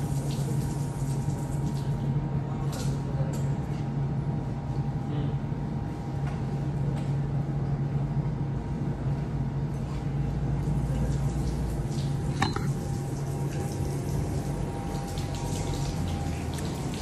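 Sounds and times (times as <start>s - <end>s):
water running from taps: 0.0s - 2.1s, 10.6s - 17.0s
people washing with splashing water: 0.0s - 3.6s, 10.6s - 17.0s
steady low hum: 1.9s - 17.0s.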